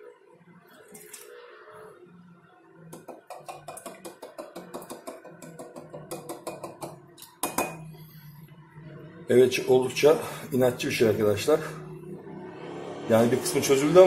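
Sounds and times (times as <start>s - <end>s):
glass clink: 6.5s - 7.9s.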